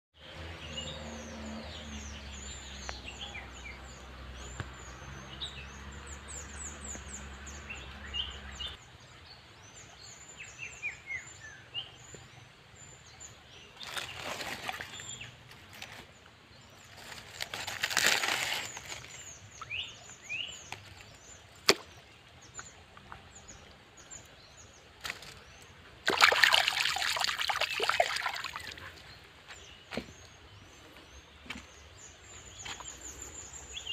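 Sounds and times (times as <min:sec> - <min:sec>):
hands rustling through dry leaves: 0:13.8 - 0:19.8, 0:25.0 - 0:28.8.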